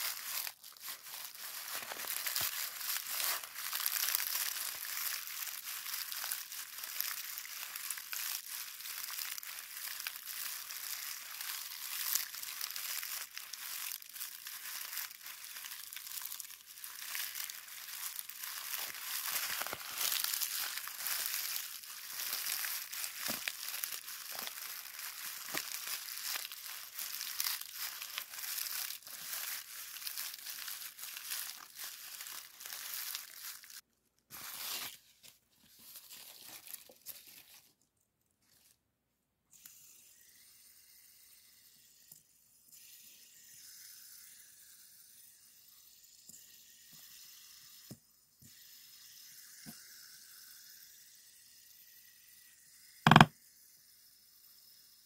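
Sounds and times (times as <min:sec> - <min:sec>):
crinkly wrapping rustling: 0:00.0 - 0:38.8, 0:53.1 - 0:53.3.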